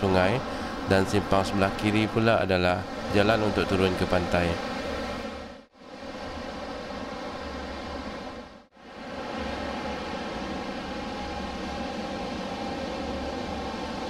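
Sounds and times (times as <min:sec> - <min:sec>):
sea surf washing: 0:00.0 - 0:05.4.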